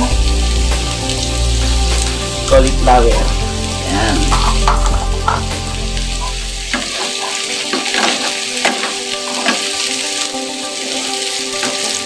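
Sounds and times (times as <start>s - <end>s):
low hum: 0.0s - 6.9s
vegetables sizzling in a frying pan: 0.0s - 12.0s
wooden spatula scraping a pan: 4.0s - 10.2s.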